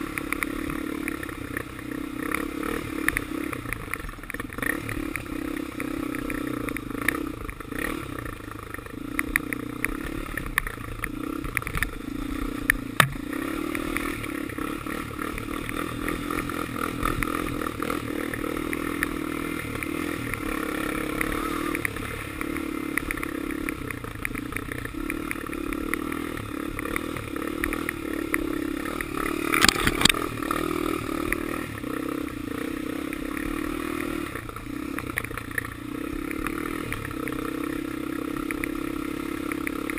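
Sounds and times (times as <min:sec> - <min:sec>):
quad engine revving: 0:00.0 - 0:39.9
rattles and knocks from rough ground: 0:29.6 - 0:30.3.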